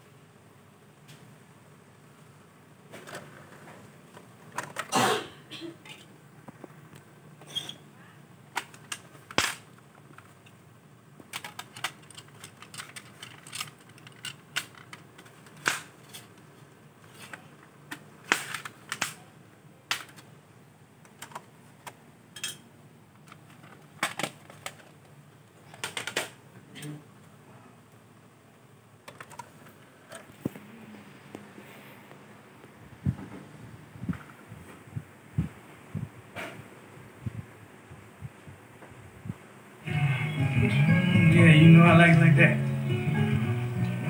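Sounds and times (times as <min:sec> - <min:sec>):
plastic disc case clicking and clattering: 0:03.0 - 0:04.9, 0:08.5 - 0:10.6, 0:11.2 - 0:19.2, 0:19.9 - 0:20.3, 0:21.0 - 0:22.0, 0:23.2 - 0:26.4, 0:29.0 - 0:30.5.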